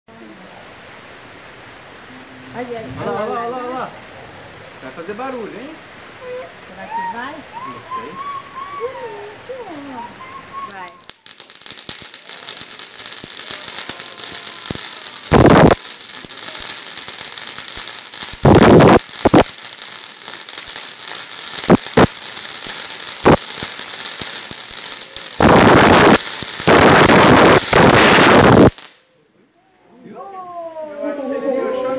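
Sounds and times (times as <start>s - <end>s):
firework fountain hissing and crackling: 0.1s - 29.0s
loud firework bursts: 7.6s - 29.0s.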